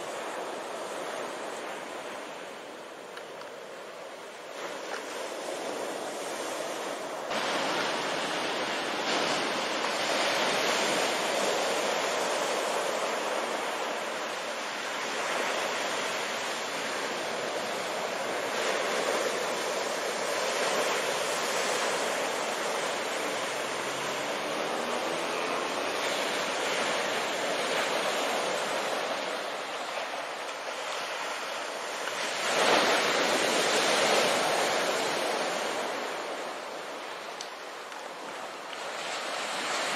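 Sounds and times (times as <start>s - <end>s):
waves breaking on a beach: 0.0s - 39.9s.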